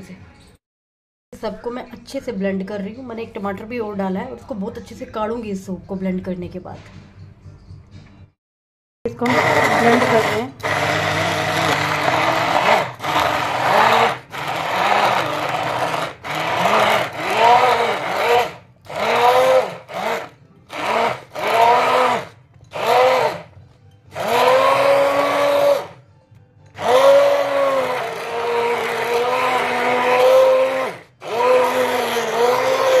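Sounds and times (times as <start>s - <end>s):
immersion blender motor whining: 9.1s - 23.5s, 24.1s - 26.0s, 26.8s - 33.0s.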